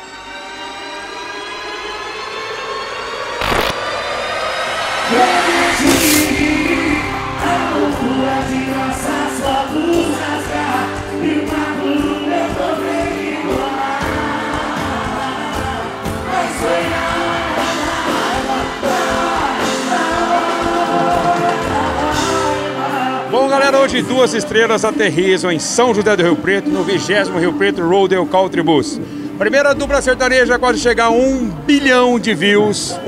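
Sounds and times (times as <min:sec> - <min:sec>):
duo singing with live band: 0:05.1 - 0:23.4.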